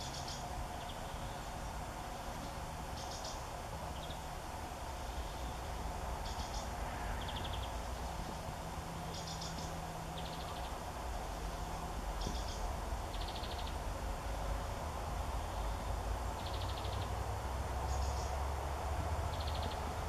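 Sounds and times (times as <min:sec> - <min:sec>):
small bird calling with rattly trill: 0:00.0 - 0:01.8, 0:02.4 - 0:08.4, 0:09.0 - 0:13.9, 0:15.4 - 0:17.2, 0:17.8 - 0:18.5, 0:19.2 - 0:20.0
background hum and rumble: 0:00.0 - 0:20.0.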